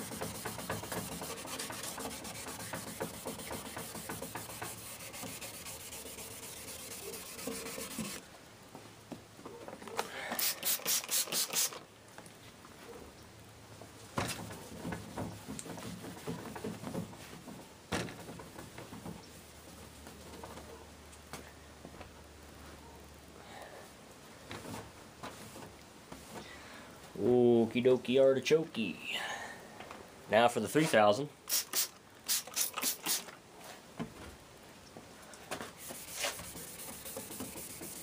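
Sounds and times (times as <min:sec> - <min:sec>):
rag wiping lens: 0:00.0 - 0:08.2, 0:31.5 - 0:33.3, 0:35.7 - 0:38.0
sandpaper rasping on plastic: 0:00.0 - 0:08.2, 0:10.4 - 0:11.8, 0:31.5 - 0:33.3, 0:35.8 - 0:38.0
sharp hissy bursts: 0:10.3 - 0:11.8, 0:31.4 - 0:33.3.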